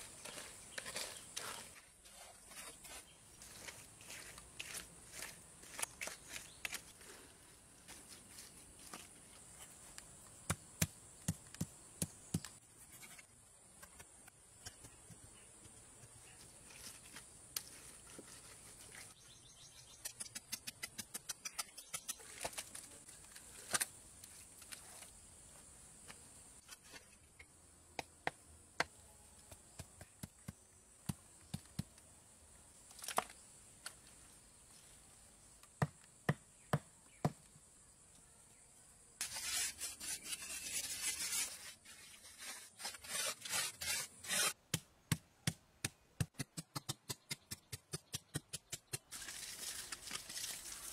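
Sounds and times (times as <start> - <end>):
rough scraping on concrete: 0.0 - 7.1, 39.2 - 44.6
tool tapping and scraping concrete: 0.0 - 7.2, 7.8 - 25.1, 39.2 - 49.3.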